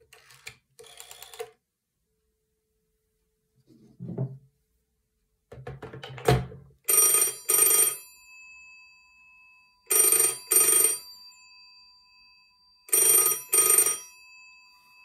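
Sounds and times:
telephone bell ringing: 0.8 - 1.5, 6.9 - 15.0
faint ringing tone: 6.9 - 15.0.

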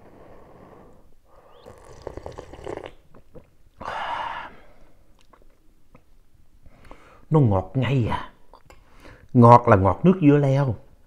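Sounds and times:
man slurping soup: 0.0 - 4.5.

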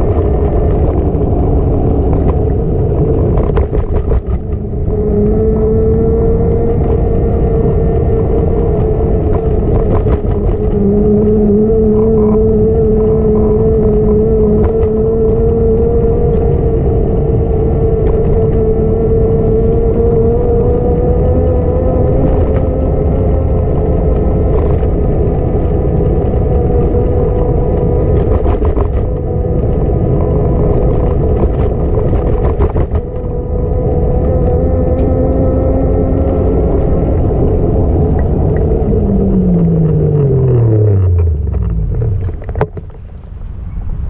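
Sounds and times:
steady whine: 0.0 - 44.0
wind rumble on microphone: 0.0 - 44.0
clicks and rattles: 39.8 - 43.3.

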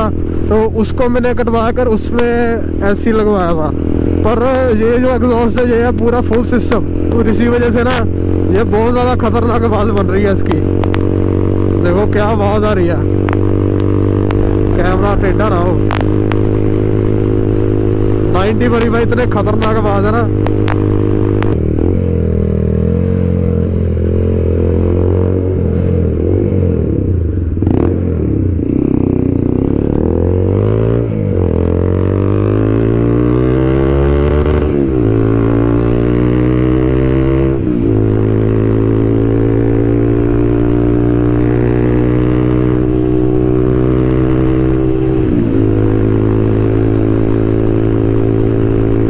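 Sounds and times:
loud motorcycle engine revving: 0.0 - 49.0.

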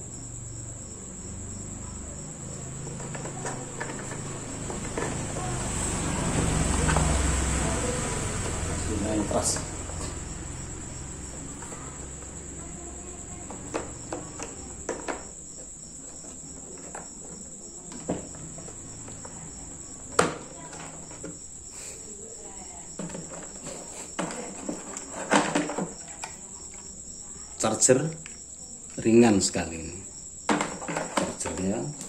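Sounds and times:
insect trill: 0.0 - 32.0
plastic tool case handled: 30.5 - 32.0.

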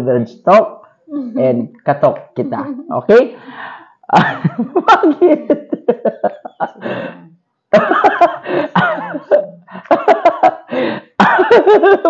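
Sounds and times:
breathy outbursts: 3.3 - 4.0, 6.7 - 7.4, 8.4 - 8.8, 10.7 - 11.2
people laughing: 4.1 - 7.2, 7.8 - 12.0.

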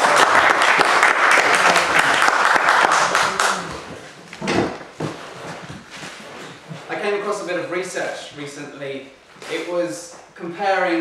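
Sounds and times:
audience applauding: 0.0 - 4.1.

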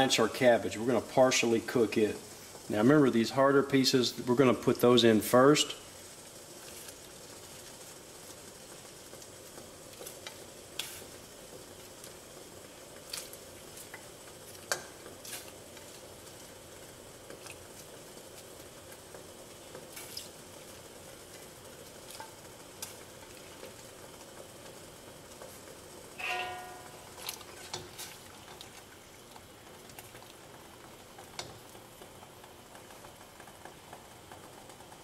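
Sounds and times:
water bubbling in pot: 4.2 - 35.0
short ringing clink: 26.2 - 27.0.

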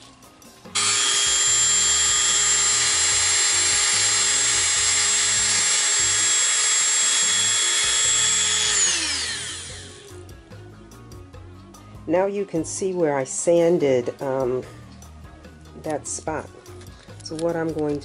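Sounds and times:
rotary tool high-pitched whine: 0.8 - 10.2.

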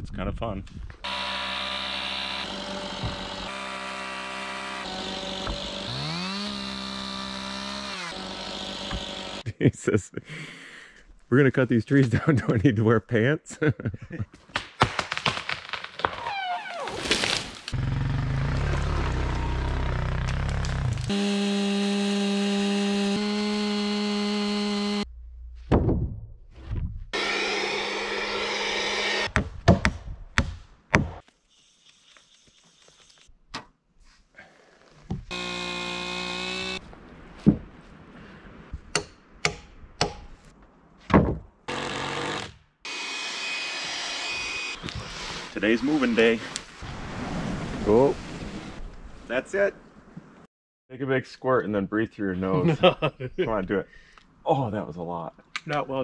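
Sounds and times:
chainsaw cutting log: 1.0 - 9.4, 17.0 - 25.1, 27.2 - 29.3, 35.3 - 36.8, 41.7 - 46.0
power tool running: 1.0 - 9.4, 19.6 - 25.0, 27.2 - 29.3, 35.3 - 36.8, 41.7 - 45.5
wood knocks and thunks: 2.9 - 3.4, 25.7 - 27.0, 29.3 - 31.2, 37.4 - 37.7, 41.0 - 41.6
quad bike engine rumbling: 17.8 - 21.1.

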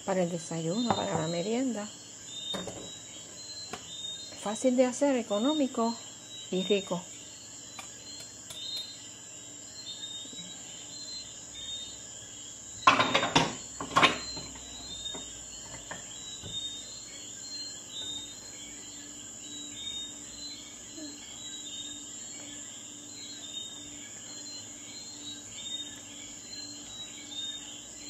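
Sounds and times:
insects chirping: 0.0 - 28.0
kitchenware clattering: 12.8 - 14.6.

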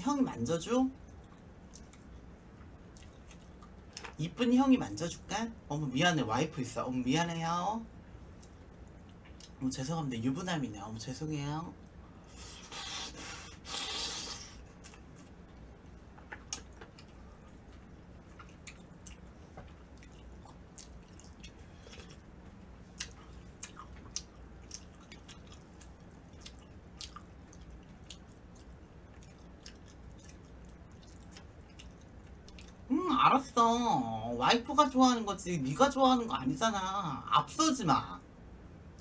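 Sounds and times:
wet chewing with mouth clicks: 1.0 - 4.2, 11.8 - 32.9.

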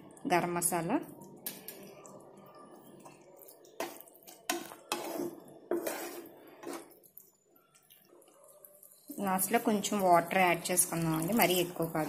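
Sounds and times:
spatula scraping a frying pan: 3.8 - 7.1.

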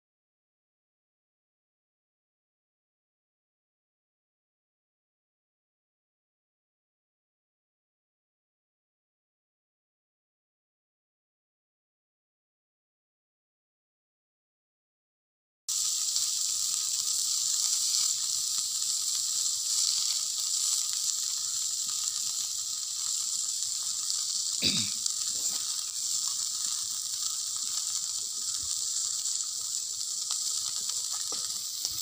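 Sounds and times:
fish sizzling on a griddle: 15.7 - 32.0.

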